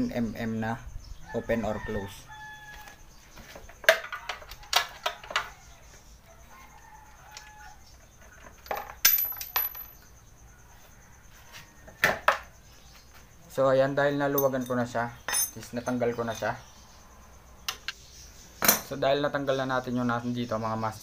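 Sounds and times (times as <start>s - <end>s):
wrench clinking on metal: 8.5s - 10.1s, 14.3s - 16.6s.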